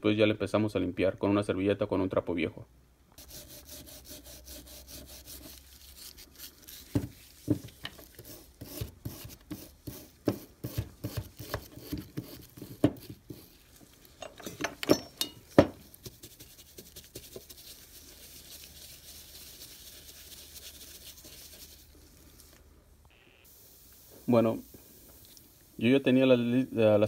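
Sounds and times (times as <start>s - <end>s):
faint steady hiss: 0.0s - 27.0s
rag wiping metal: 3.2s - 22.2s.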